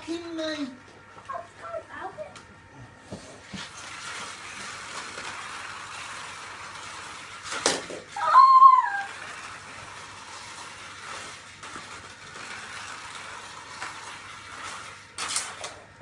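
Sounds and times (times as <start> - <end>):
toy slot cars whirring: 3.7 - 16.0
child squealing: 8.2 - 9.2.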